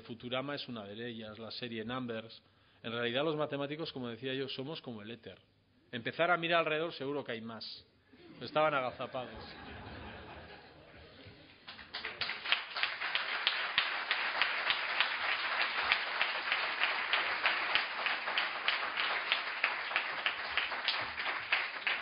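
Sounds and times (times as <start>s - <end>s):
audience applauding: 11.6s - 22.0s.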